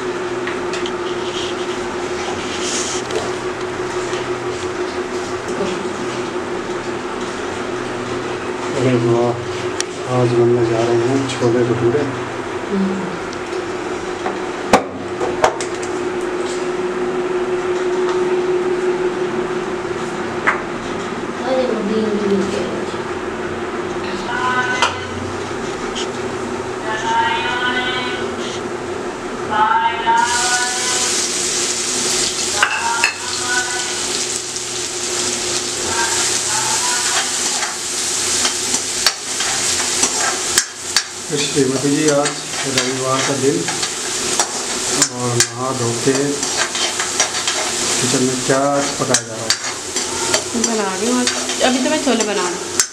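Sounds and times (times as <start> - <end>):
steady mechanical hum: 0.0 - 52.9
onions sizzling in oil: 30.2 - 52.9.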